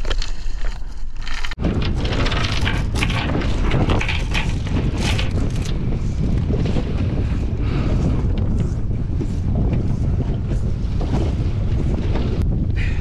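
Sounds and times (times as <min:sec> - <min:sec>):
chain rattling on boat deck: 0:01.2 - 0:06.0
wind buffeting microphone: 0:01.6 - 0:13.0.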